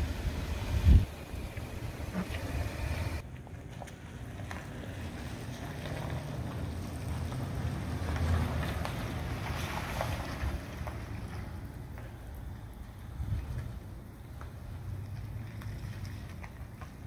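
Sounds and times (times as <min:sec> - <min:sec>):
wind rumbling on microphone: 0:00.0 - 0:03.2, 0:08.6 - 0:17.0
distant truck running: 0:00.0 - 0:17.0.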